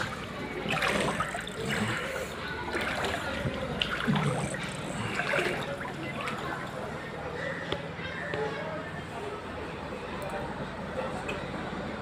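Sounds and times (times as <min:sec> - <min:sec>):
floodwater splashing and trickling: 0:00.0 - 0:07.6.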